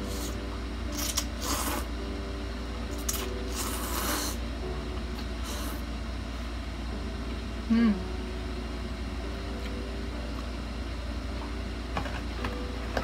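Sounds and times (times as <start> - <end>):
steady low hum: 0.0 - 13.0
noodles being slurped: 3.0 - 4.4.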